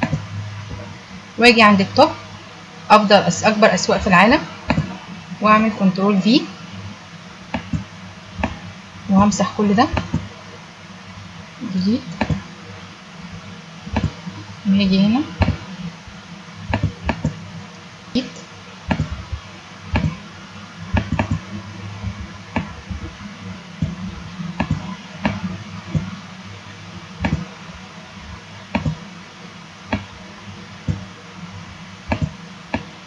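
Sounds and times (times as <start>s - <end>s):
steady low hum: 0.0s - 33.0s
computer mouse clicking: 4.7s - 4.9s, 12.1s - 12.4s, 13.9s - 14.2s, 16.7s - 17.4s, 18.9s - 19.2s, 19.9s - 20.2s, 20.9s - 21.4s, 24.6s - 26.1s, 27.2s - 27.5s, 28.7s - 29.0s, 32.1s - 32.9s.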